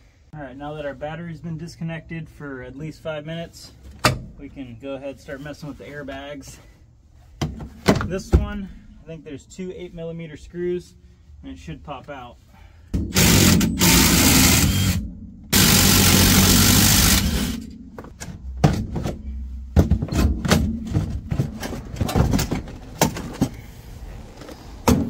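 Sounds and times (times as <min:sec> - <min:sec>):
power driver running: 0:13.0 - 0:18.1.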